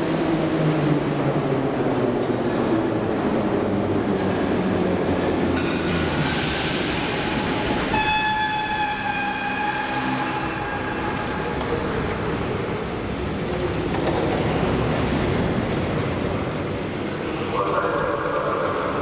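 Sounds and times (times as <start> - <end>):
train rumble: 0.0 - 19.0
high brake squeal: 6.2 - 11.5.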